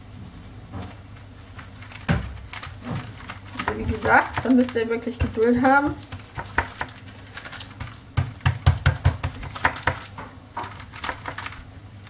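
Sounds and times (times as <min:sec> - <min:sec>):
hand patting dough: 0:01.0 - 0:12.0.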